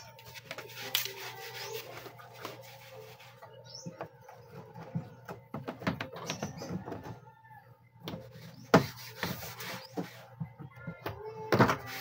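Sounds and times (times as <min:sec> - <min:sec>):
plastic parts clicking and scraping: 0:00.1 - 0:02.6.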